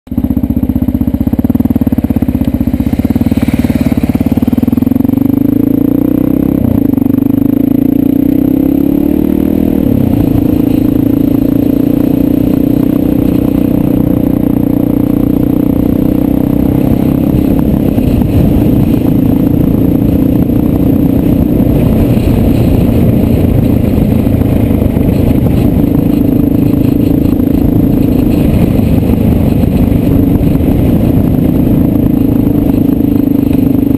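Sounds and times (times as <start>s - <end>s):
motorcycle engine running: 0.0s - 33.9s
tyres on gravel road: 0.1s - 33.9s
wind rushing: 2.0s - 5.9s, 16.8s - 33.9s.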